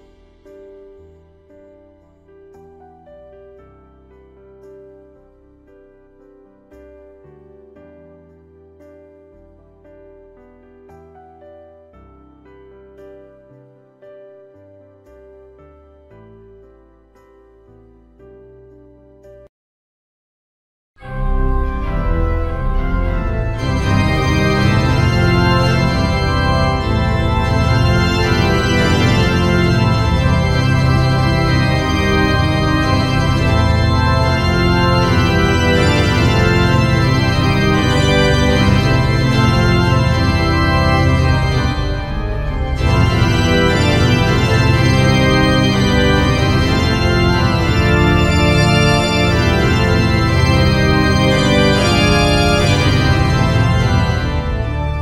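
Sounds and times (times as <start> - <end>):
steady bass: 21.0 - 55.0
sustained chords: 21.0 - 55.0.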